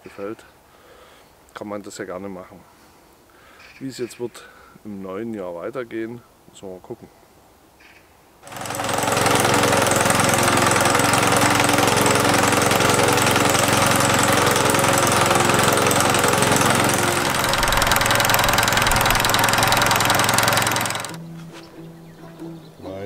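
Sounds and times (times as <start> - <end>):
sickle-bar mower cutting grass: 8.4 - 21.2
tractor engine running under load: 8.5 - 21.2.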